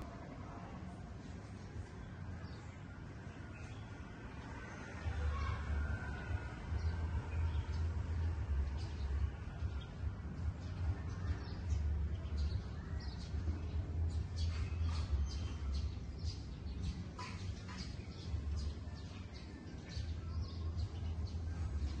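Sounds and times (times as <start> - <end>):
small birds chirping: 1.2 - 22.0
steady low rumble: 5.3 - 17.2.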